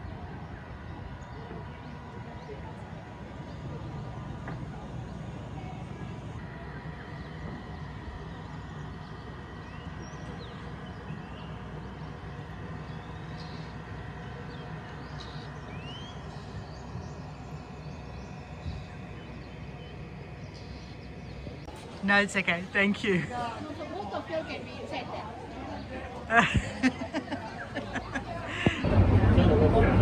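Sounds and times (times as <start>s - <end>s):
bird chirps: 8.6s - 21.7s
low rumble: 28.4s - 30.0s.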